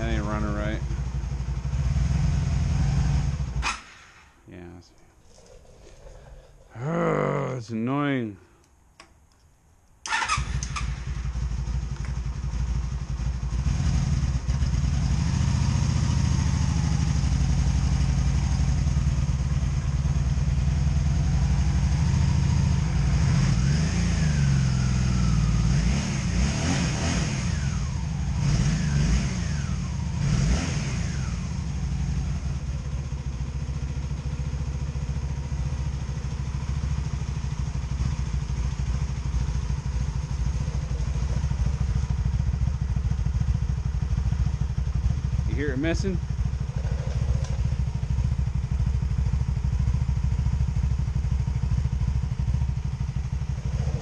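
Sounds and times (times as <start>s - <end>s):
motorcycle engine starting and idling: 0.0s - 8.0s, 8.9s - 54.0s
engine misfire popping: 46.3s - 49.3s.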